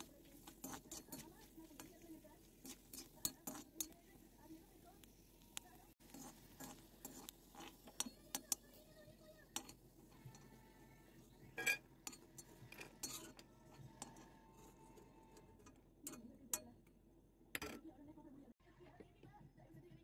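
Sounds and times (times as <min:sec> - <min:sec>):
metal spatula scraping a pan: 0:00.0 - 0:04.6, 0:06.0 - 0:16.7.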